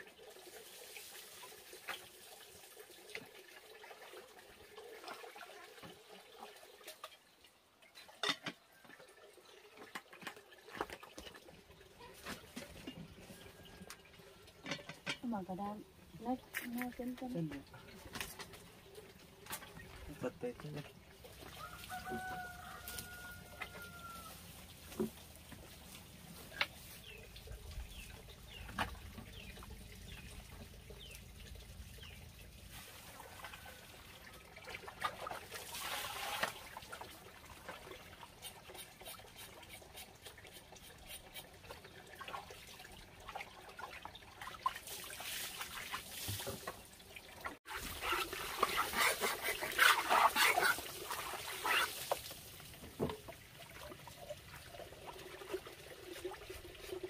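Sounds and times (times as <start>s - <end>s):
water trickling into a basin: 0.0s - 57.0s
splashing as meat is washed: 32.6s - 41.6s, 42.2s - 46.9s.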